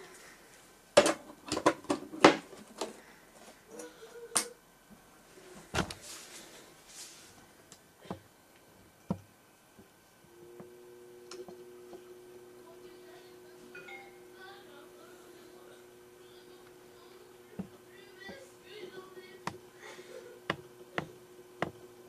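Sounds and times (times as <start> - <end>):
hard drive spinning hum: 0.0 - 22.0
hard drive clicks and knocks: 8.0 - 12.5, 17.5 - 19.7, 20.4 - 22.0.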